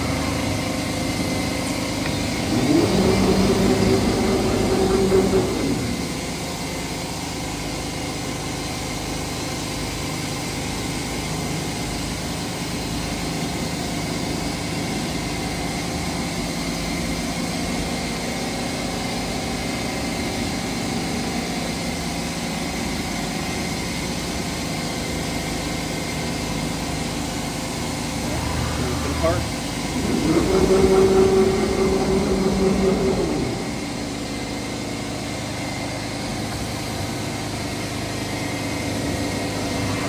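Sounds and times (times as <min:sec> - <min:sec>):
cnc router humming: 0:00.0 - 0:07.7, 0:26.6 - 0:40.0.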